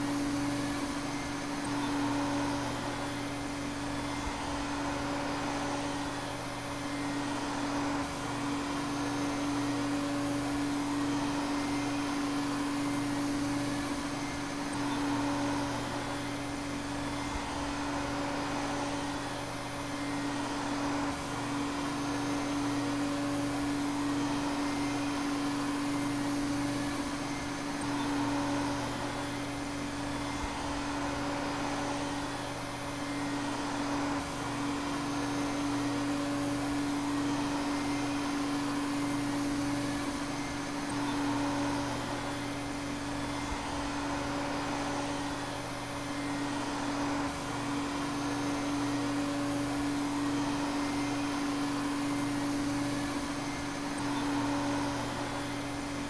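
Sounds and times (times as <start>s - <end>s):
vacuum cleaner running: 0.0s - 56.0s.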